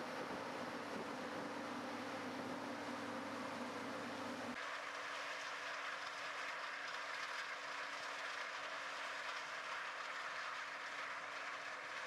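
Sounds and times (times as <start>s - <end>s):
faint machine hum: 0.0s - 4.6s.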